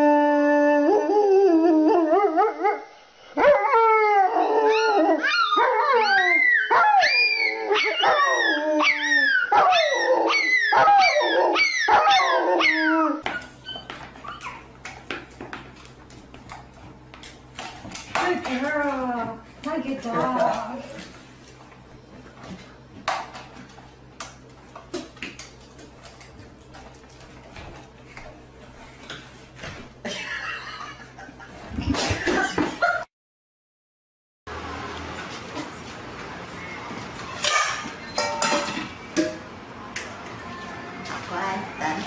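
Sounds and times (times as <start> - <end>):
dogs howling and yelping: 0.0 - 14.7.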